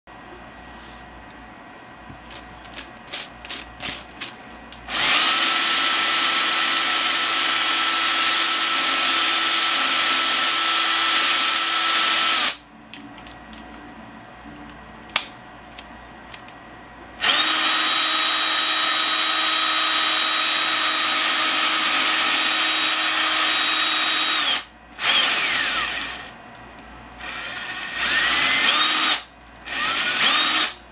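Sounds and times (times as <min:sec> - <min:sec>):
power drill whining: 0:04.8 - 0:12.6, 0:17.2 - 0:26.4, 0:27.2 - 0:30.8.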